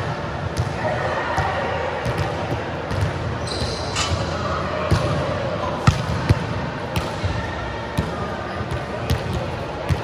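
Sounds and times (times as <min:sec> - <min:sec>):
brief high squeak: 0:03.4 - 0:04.2.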